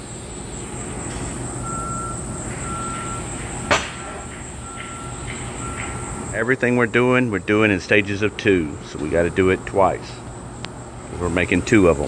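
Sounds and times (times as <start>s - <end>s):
high whine: 0.0s - 12.0s
shop background noise: 0.0s - 12.0s
short beeps: 1.6s - 3.3s, 4.6s - 6.2s.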